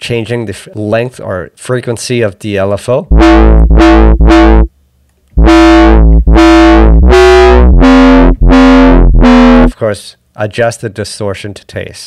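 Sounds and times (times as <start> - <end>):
buzzy synth bass notes: 3.1 - 4.7, 5.4 - 9.8.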